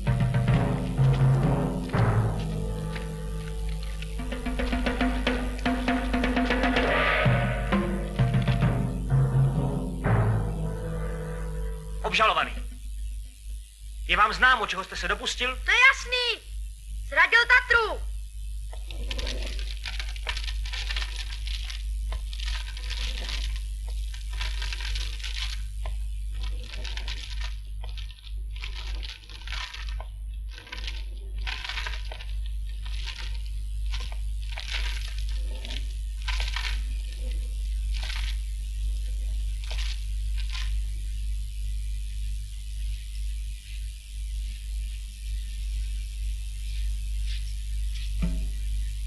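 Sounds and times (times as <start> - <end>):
low mains hum: 0.0 - 49.0
scraping and rustling: 18.8 - 38.4.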